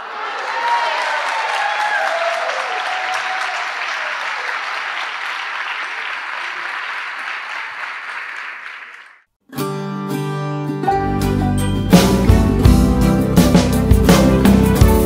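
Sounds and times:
congregation applauding: 0.0 - 9.3.

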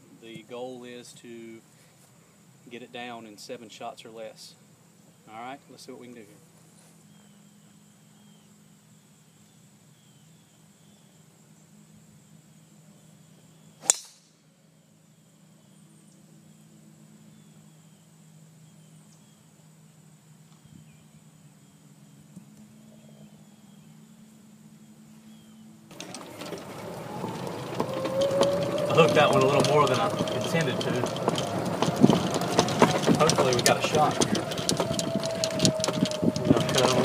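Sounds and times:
faint insects chirping: 0.0 - 27.9
golf club striking ball: 13.8 - 14.3.

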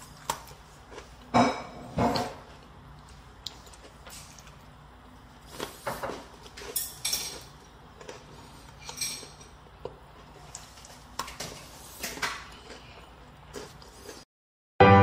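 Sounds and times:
cookie crunching while chewed: 2.5 - 14.2.

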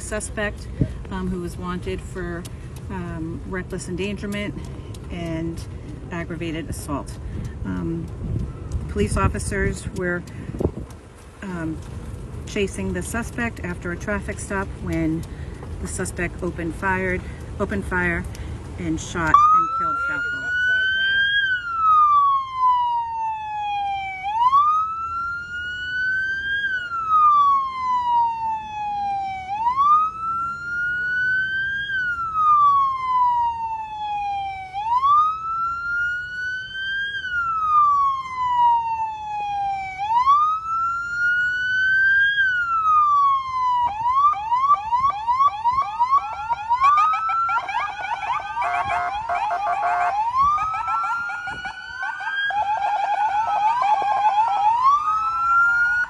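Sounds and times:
police siren wailing: 19.2 - 56.0
second siren wailing: 19.3 - 56.0
siren yelp: 19.3 - 56.0.

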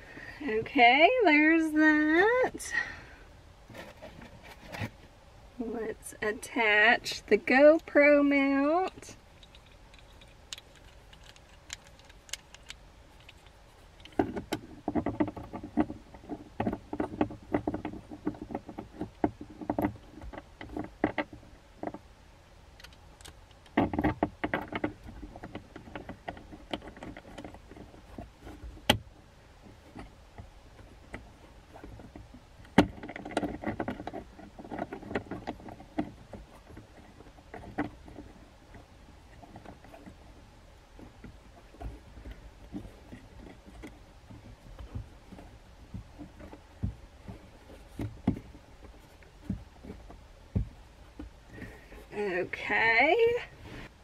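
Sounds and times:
plastic mount parts clicking and rattling: 8.8 - 22.0, 22.8 - 40.4, 41.0 - 52.1.

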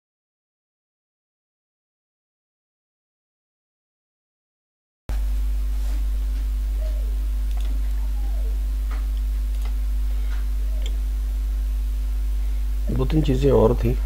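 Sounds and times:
low electrical hum: 5.1 - 14.0
computer mouse clicks: 7.4 - 8.0, 10.8 - 11.0.

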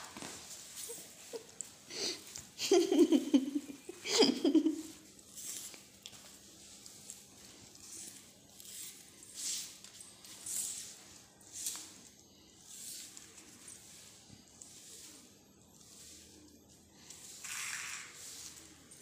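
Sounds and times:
cat scuffling on stone floor: 0.0 - 19.0.

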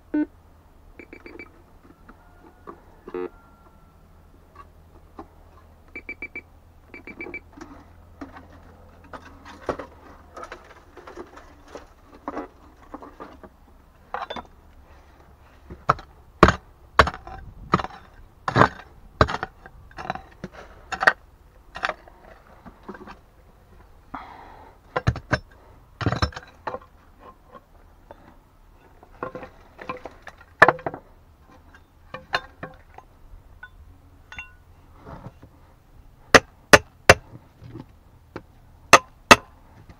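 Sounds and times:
metal detector beeps: 1.0 - 1.5, 5.9 - 7.5
pick striking stony soil: 15.6 - 23.2
stones scraping and clinking: 15.8 - 23.2.

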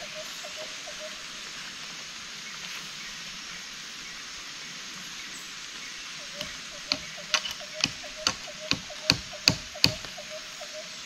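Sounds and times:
rain hiss: 0.0 - 11.0
sharp knocks: 6.4 - 10.2.

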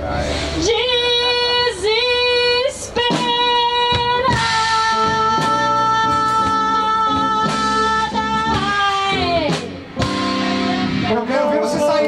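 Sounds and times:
guitar chords: 0.0 - 12.0
live band music: 0.0 - 12.0
woman singing long notes: 0.6 - 9.6.

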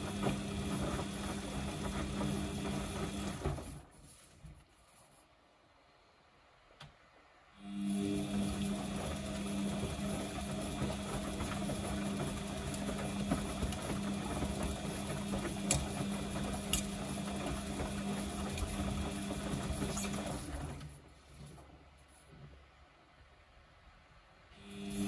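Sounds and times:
washing machine drum spinning: 0.0 - 4.0, 7.8 - 21.6.

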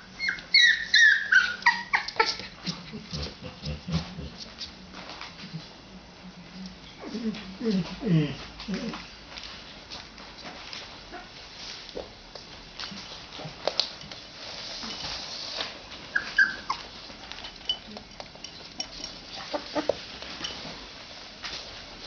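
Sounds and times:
puppy whimpering: 0.1 - 2.5, 16.1 - 16.9
rustles: 7.0 - 22.0.

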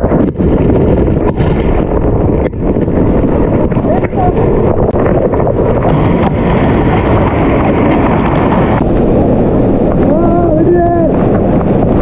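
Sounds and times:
man calling out: 10.1 - 11.2.

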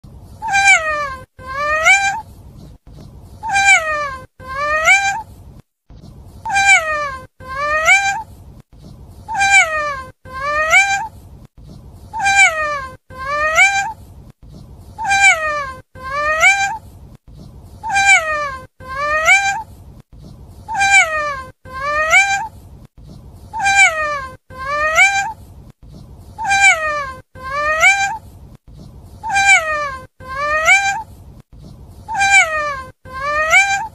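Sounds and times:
cat meowing: 0.4 - 2.2, 3.4 - 5.3, 6.5 - 8.3, 9.3 - 11.1, 12.1 - 14.0, 15.0 - 16.8, 17.8 - 19.7, 20.7 - 22.5, 23.5 - 25.4, 26.4 - 28.2, 29.2 - 31.1, 32.1 - 33.9.

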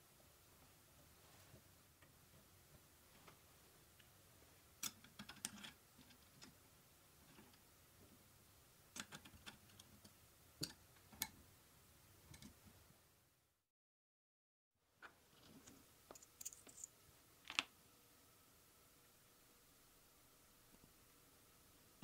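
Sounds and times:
metal parts clicking and tapping: 15.6 - 16.9.

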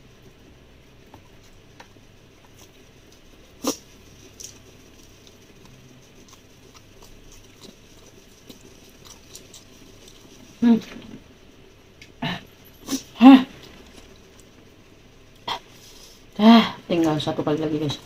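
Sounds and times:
person chewing food: 1.0 - 11.3, 12.0 - 14.7.

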